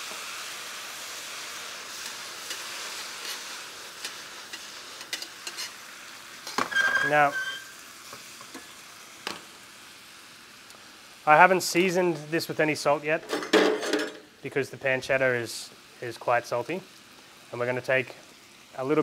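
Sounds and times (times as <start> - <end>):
food sizzling in a frying pan: 0.0 - 19.0
metal tongs clicking on pan: 4.0 - 5.7.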